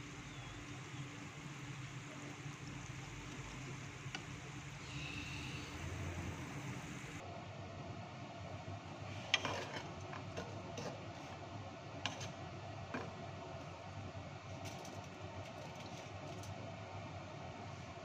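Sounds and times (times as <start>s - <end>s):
faint oil sizzle: 0.0s - 7.2s.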